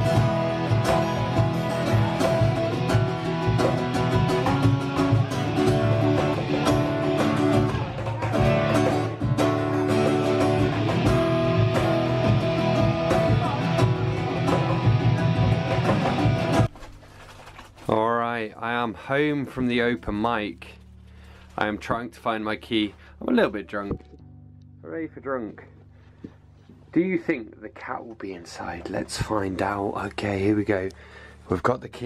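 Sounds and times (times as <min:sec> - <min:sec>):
acoustic guitar strumming: 0:00.0 - 0:16.8
cajon beat: 0:00.0 - 0:16.8.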